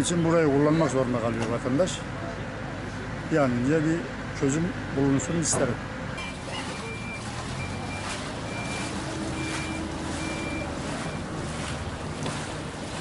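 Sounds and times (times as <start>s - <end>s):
reversing alarm beeping: 6.2s - 11.4s
wading through water splashing: 6.2s - 13.0s.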